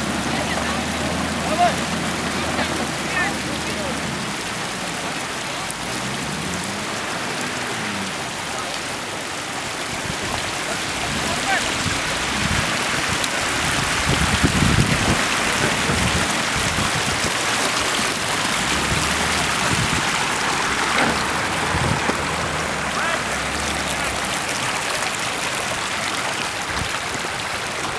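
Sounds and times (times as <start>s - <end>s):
wind on microphone: 10.0s - 17.4s, 18.6s - 20.4s, 21.4s - 22.5s.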